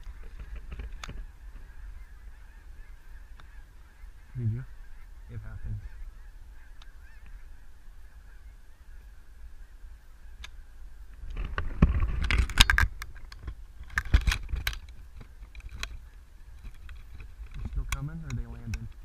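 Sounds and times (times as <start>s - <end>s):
geese honking: 0.0s - 11.1s.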